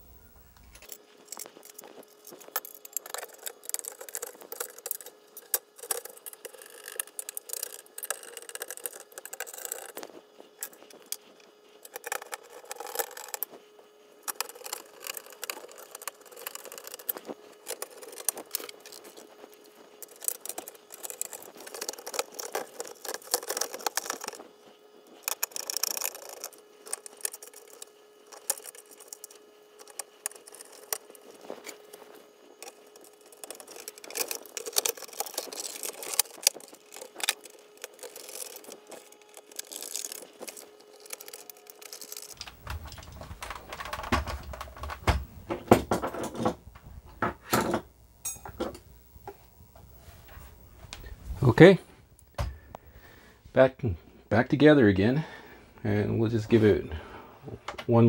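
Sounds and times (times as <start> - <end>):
computer case being handled: 42.4 - 46.7.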